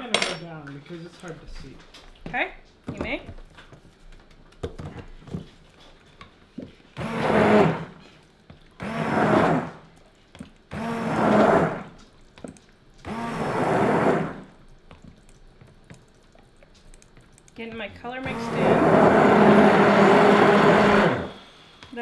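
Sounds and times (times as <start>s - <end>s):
immersion blender pulses: 7.0s - 8.1s, 8.8s - 9.9s, 10.7s - 12.1s, 13.0s - 14.6s, 18.1s - 22.0s.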